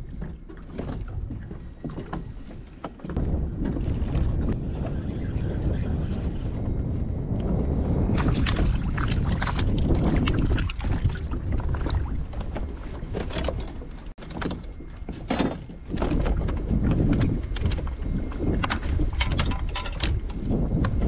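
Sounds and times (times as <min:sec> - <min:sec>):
wind buffeting microphone: 0:00.0 - 0:21.0
water splashing: 0:08.1 - 0:14.0.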